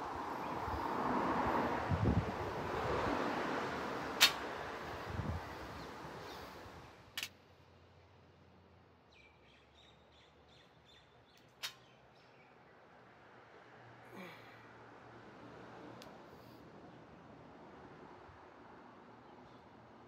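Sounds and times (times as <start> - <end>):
wind noise: 0.0 - 3.3, 4.1 - 6.3.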